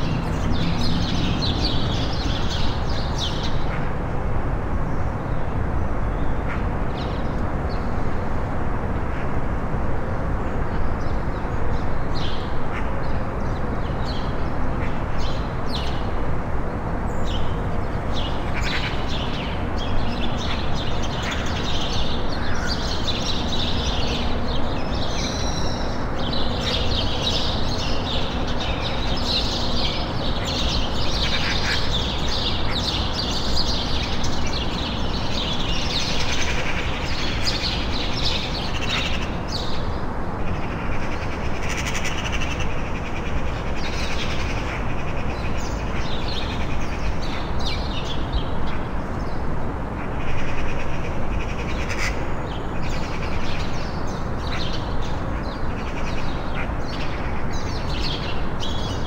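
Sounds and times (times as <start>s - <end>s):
small birds chirping: 0.0s - 3.9s, 17.1s - 59.0s.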